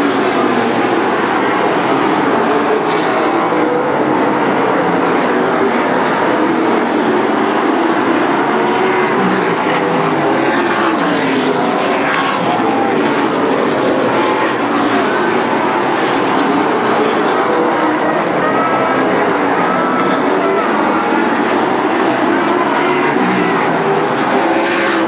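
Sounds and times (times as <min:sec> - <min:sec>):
race car engines roaring: 0:00.0 - 0:25.0.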